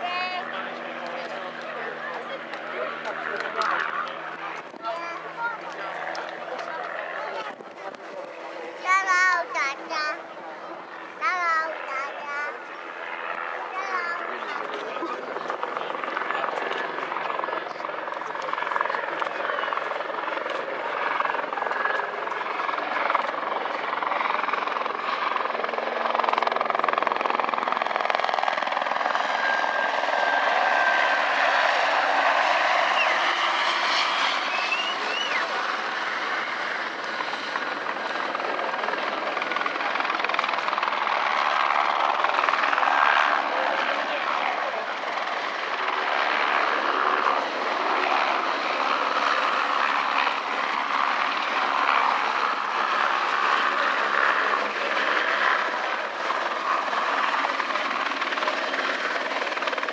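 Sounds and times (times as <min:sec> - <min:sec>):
helicopter rotor and turbine: 0:00.0 - 0:59.9.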